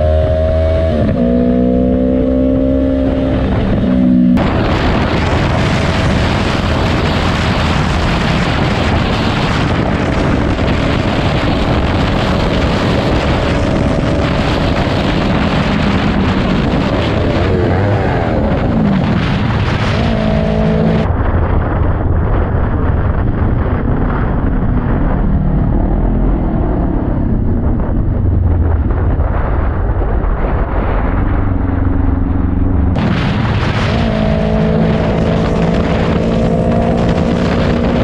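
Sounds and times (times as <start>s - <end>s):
motorcycle engine hum: 0.0s - 38.0s
wind rush on microphone: 0.0s - 38.0s.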